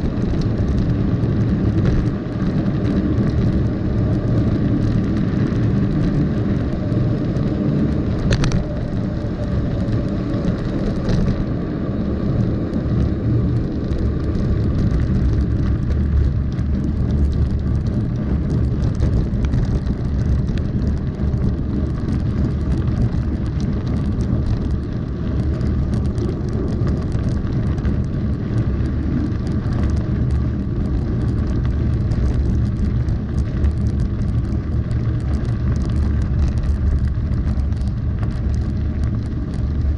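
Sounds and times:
bike tyres rumbling on gravel: 0:00.0 - 0:39.9
wind on microphone: 0:00.0 - 0:39.9.

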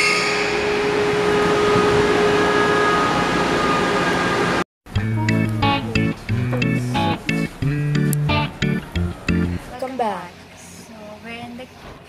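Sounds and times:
train hum and rushing: 0:00.0 - 0:04.6.

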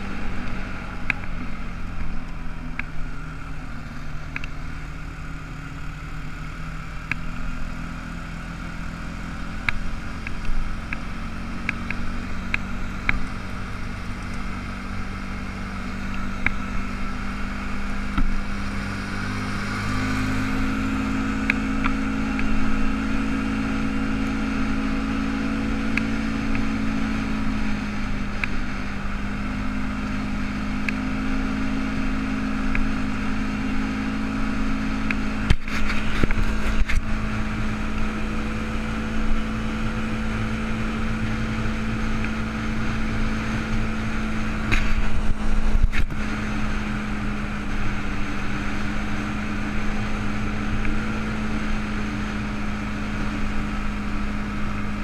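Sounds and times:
atv engine running: 0:00.0 - 0:55.0.

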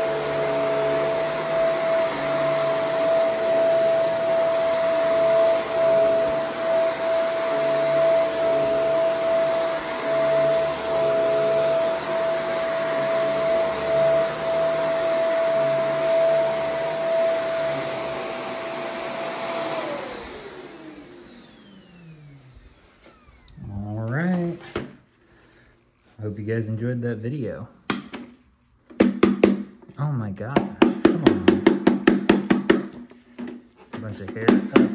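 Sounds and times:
upright vacuum running on carpet: 0:00.0 - 0:23.6.

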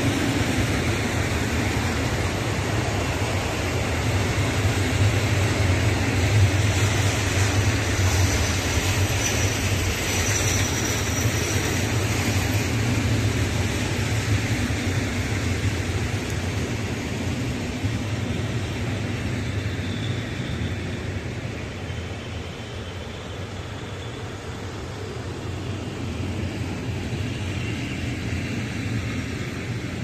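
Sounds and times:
train wheels rumbling on rails: 0:00.0 - 0:30.0
faint high whine: 0:17.8 - 0:29.8.

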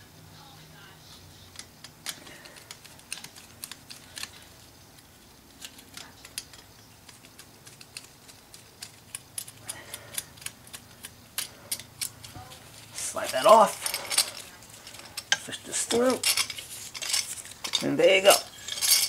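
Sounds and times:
screwdriver and hardware metallic clicks: 0:01.5 - 0:04.4.

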